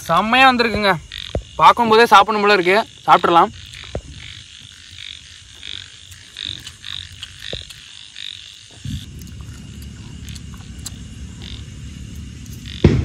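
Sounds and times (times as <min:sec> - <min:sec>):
frogs croaking: 0:00.0 - 0:13.0
low steady rumbling: 0:08.6 - 0:13.0.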